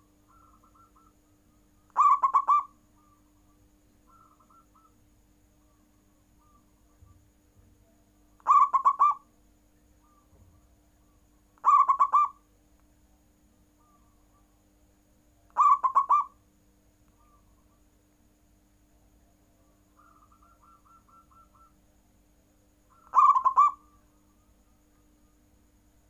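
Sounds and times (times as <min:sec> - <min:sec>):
dove cooing: 0:00.0 - 0:01.2, 0:01.9 - 0:03.2, 0:04.1 - 0:05.0, 0:08.4 - 0:09.2, 0:11.6 - 0:12.4, 0:15.6 - 0:16.4, 0:20.0 - 0:21.8, 0:22.9 - 0:24.1.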